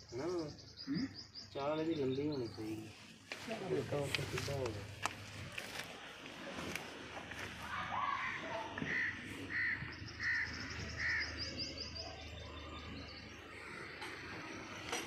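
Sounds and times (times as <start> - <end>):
bird calls: 0.0 - 3.1, 7.7 - 15.0.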